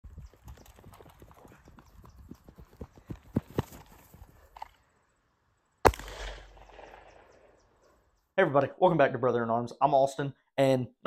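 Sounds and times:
running footsteps on grass: 0:00.0 - 0:04.6
pistol shot with echo: 0:05.8 - 0:07.6.

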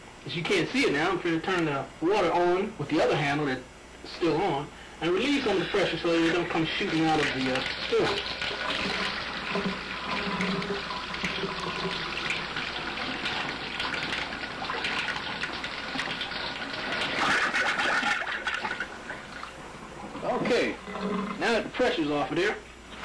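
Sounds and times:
water running from faucet: 0:05.0 - 0:19.6.

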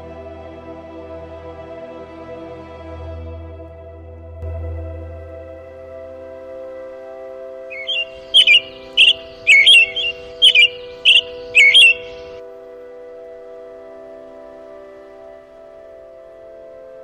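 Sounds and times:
ambient music pad: 0:00.0 - 0:17.0
songbird chirping: 0:06.9 - 0:12.4.

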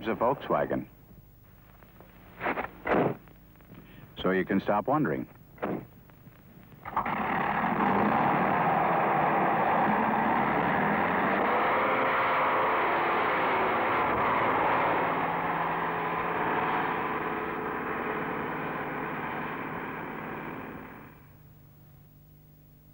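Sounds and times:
vehicle engine running: 0:06.8 - 0:21.3.

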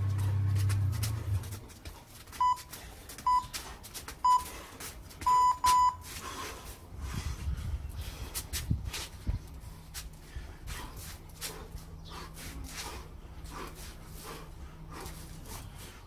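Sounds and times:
electronic timer beeps: 0:02.4 - 0:02.7, 0:03.3 - 0:03.5, 0:04.2 - 0:04.5, 0:05.2 - 0:06.0.

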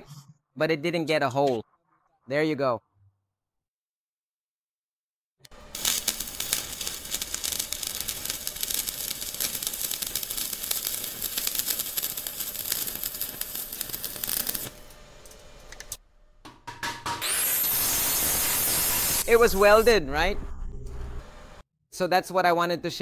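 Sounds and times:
welding arc crackling: 0:05.5 - 0:14.8, 0:17.2 - 0:20.0.

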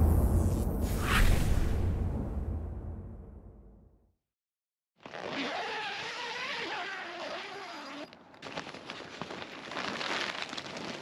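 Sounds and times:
zipper being pulled open: 0:05.0 - 0:08.2.

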